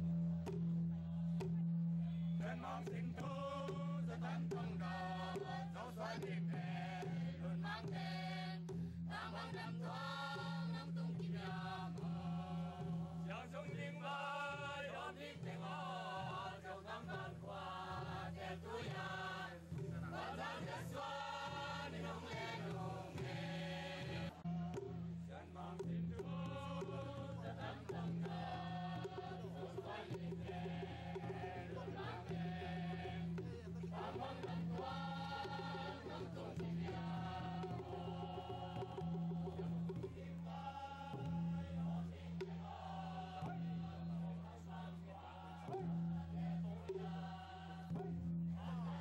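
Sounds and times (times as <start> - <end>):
group chanting in unison: 2.3 - 49.0
hand drums beaten with sticks: 2.8 - 40.4.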